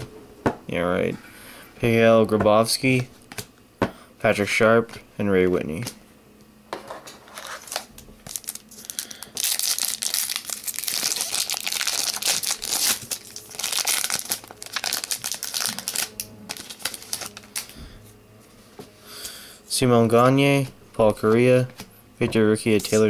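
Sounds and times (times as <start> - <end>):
foil wrapper crinkling: 7.4 - 17.8.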